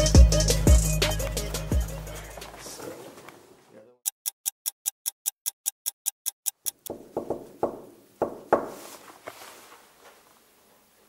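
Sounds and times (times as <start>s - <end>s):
quick even ticking: 4.0s - 7.0s
knocks on a door: 6.9s - 8.8s.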